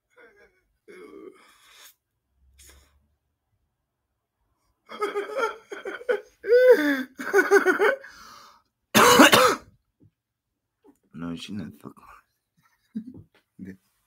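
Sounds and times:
man laughing hard: 0:04.9 - 0:08.1.

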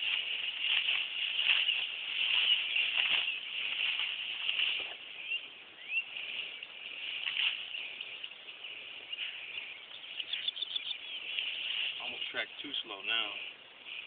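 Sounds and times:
footsteps through tall grass: 0:00.0 - 0:14.0
steady high hiss: 0:00.0 - 0:14.0
short rising bird chirps: 0:05.1 - 0:12.0.

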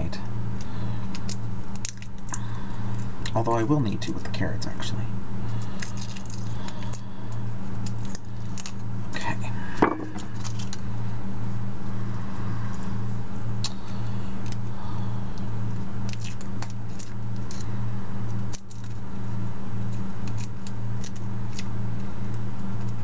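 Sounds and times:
steady low hum: 0:00.0 - 0:23.0
garlic skins crackling: 0:00.6 - 0:04.1, 0:05.4 - 0:09.3, 0:13.6 - 0:23.0.

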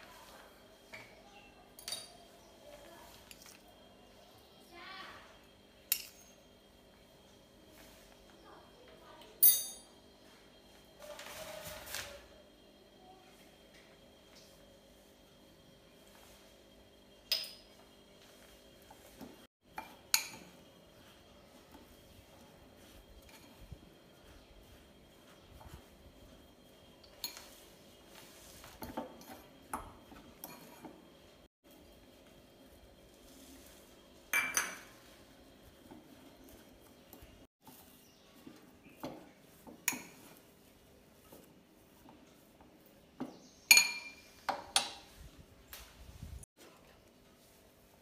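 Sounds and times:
spoon clinking on glass bowl: 0:34.4 - 0:34.9, 0:43.7 - 0:44.9.

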